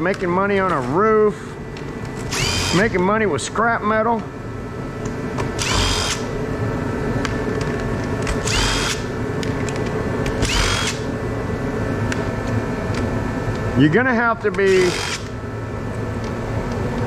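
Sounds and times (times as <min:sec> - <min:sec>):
steady low hum: 0:00.0 - 0:17.0
power drill whining: 0:02.3 - 0:02.8, 0:05.6 - 0:06.2, 0:08.4 - 0:09.0, 0:10.4 - 0:11.0, 0:14.8 - 0:15.3.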